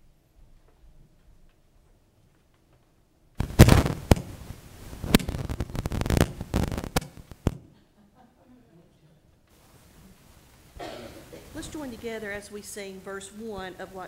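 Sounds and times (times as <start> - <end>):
microphone handling rustle: 3.4 - 7.7.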